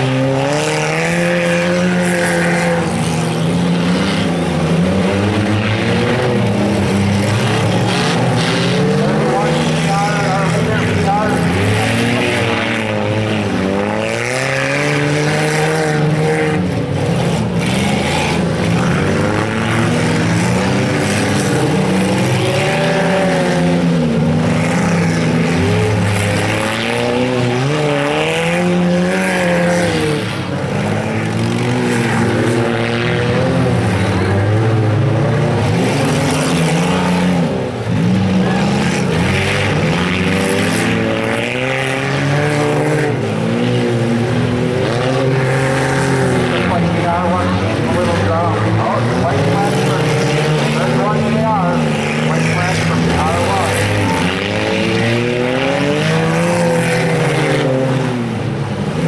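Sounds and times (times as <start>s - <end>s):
race car engines revving: 0.0s - 59.0s.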